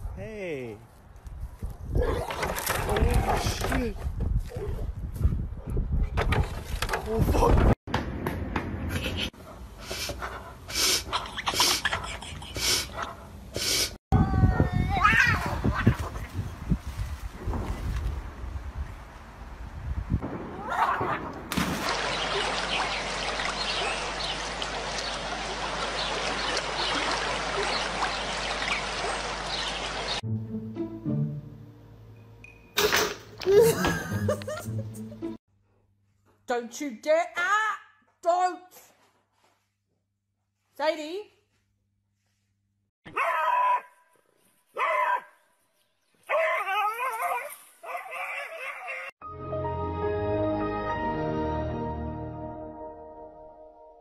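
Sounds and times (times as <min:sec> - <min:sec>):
water trickling and splashing: 0:21.5 - 0:30.2
dog yelping: 0:43.1 - 0:44.0, 0:44.8 - 0:45.3, 0:46.3 - 0:49.1.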